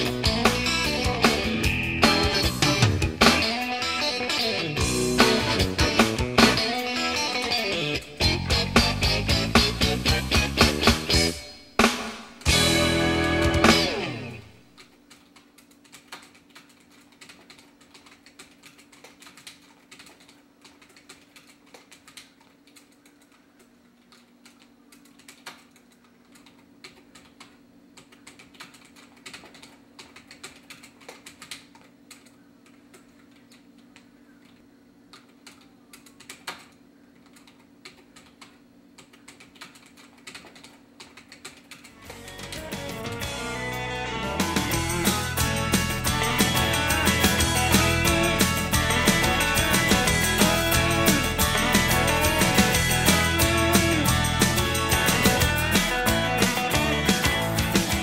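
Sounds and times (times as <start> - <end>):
keyboard key clicks: 14.7 - 42.6.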